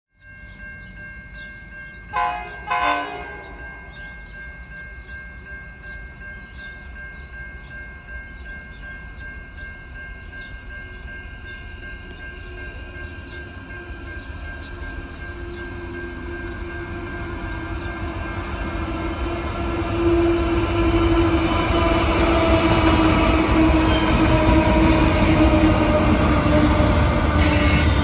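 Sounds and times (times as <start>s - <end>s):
low train rumble: 0.2s - 28.0s
locomotive horn blasts: 2.1s - 3.7s, 18.4s - 28.0s.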